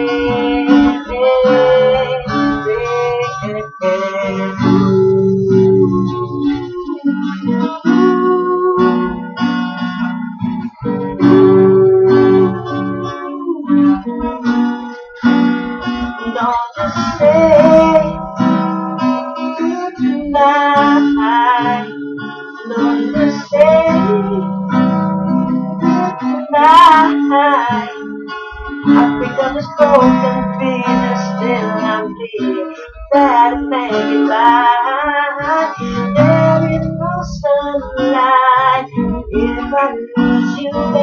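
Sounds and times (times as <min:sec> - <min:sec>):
man singing: 0:00.0 - 0:09.3, 0:16.2 - 0:18.4, 0:19.5 - 0:24.8, 0:28.9 - 0:41.0
acoustic guitar strummed: 0:00.0 - 0:41.0.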